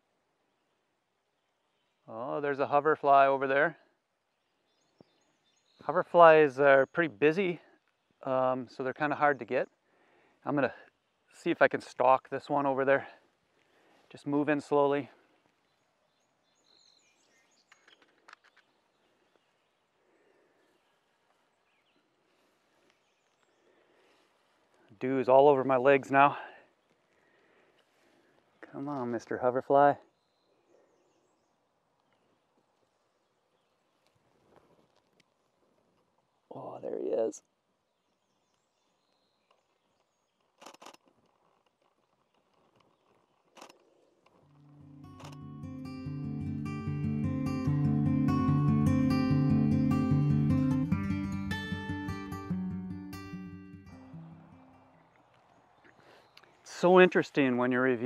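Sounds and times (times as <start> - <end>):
music: 44.5 - 54.9
camera shutter clicks: 45.2 - 45.4.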